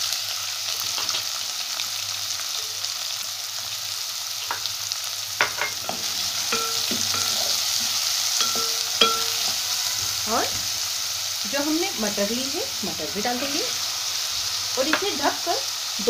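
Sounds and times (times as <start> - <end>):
onions sizzling in oil: 0.0 - 16.0
short metallic rings: 8.4 - 9.6.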